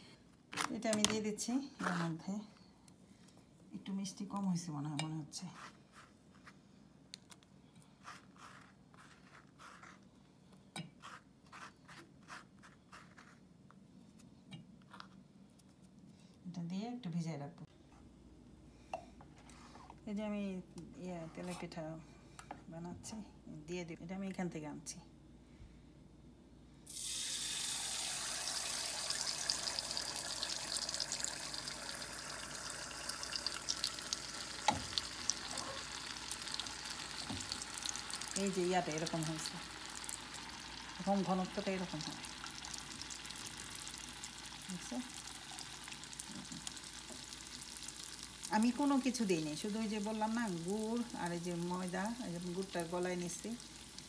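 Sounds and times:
faint scratching and rubbing: 5.4 - 6.7, 8.0 - 10.1, 11.0 - 13.4
batter sizzling in hot oil: 26.9 - 54.0.

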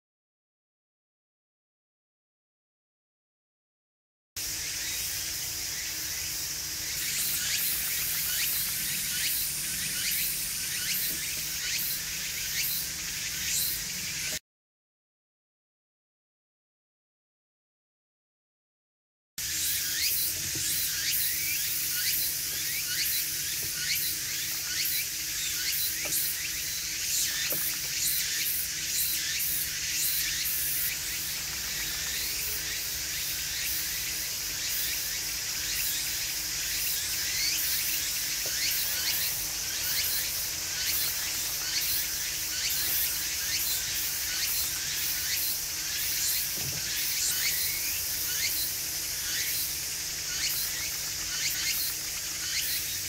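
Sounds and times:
high hiss: 4.4 - 14.4, 19.4 - 53.0.

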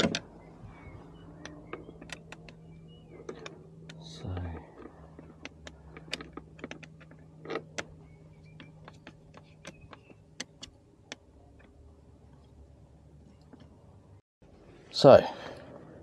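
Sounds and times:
steady low hum: 0.0 - 16.0
plastic parts clicking: 3.2 - 11.8.

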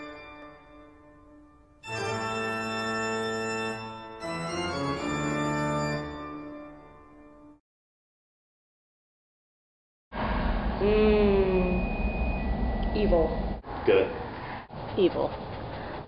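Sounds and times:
organ chords: 0.0 - 6.8.

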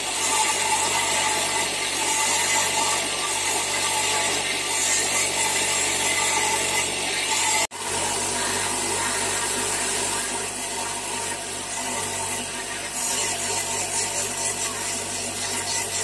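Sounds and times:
grinding wheel motor hum: 0.0 - 16.0
stone rasping on grinding wheel: 0.0 - 16.0.

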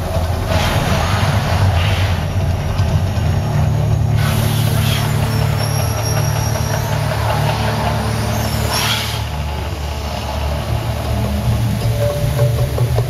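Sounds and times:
gas flames whooshing: 0.0 - 3.3, 4.0 - 11.7
deep steady rumble: 0.0 - 13.0.

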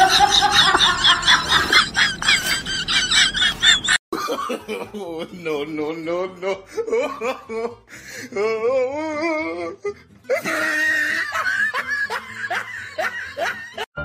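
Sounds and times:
person laughing: 0.0 - 13.9
background music: 4.2 - 14.0.

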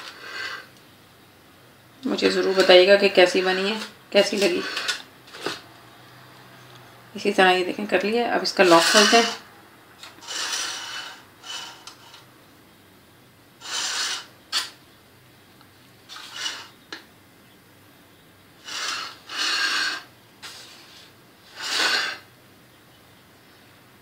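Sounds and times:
knife scraping in metal pan: 2.2 - 5.6, 8.4 - 12.3, 13.6 - 14.8, 16.1 - 16.8.

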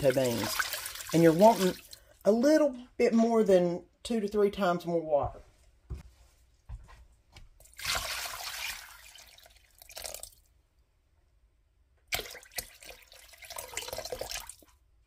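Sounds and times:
water pouring and splashing: 0.0 - 2.2, 7.6 - 10.5, 12.1 - 14.8.

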